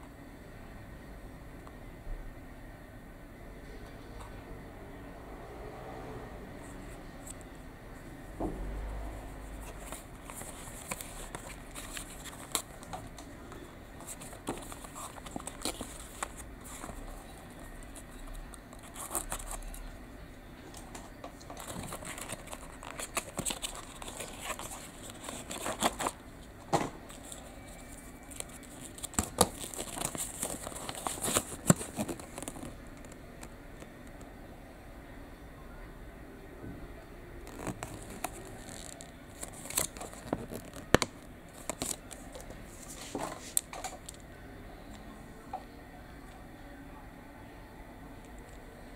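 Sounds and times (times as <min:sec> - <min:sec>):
paper and card rustling: 0:09.2 - 0:19.8, 0:20.8 - 0:26.4, 0:27.1 - 0:33.2, 0:37.5 - 0:44.2.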